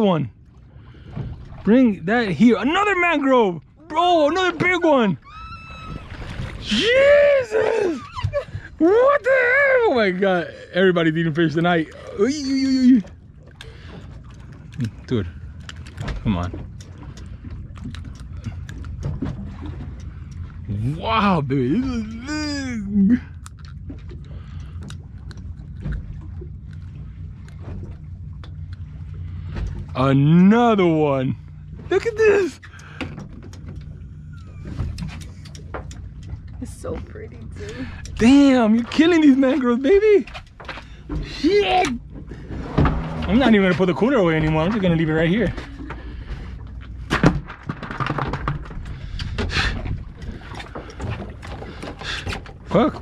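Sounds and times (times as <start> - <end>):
boat hum: 0.0 - 53.0
water lapping against hull: 0.0 - 53.0
cooler knocking and clattering: 47.1 - 49.5.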